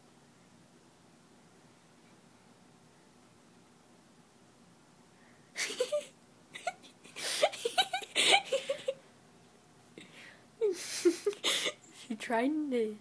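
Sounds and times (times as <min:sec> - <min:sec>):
person snickering: 0:05.6 - 0:09.0, 0:10.6 - 0:11.8.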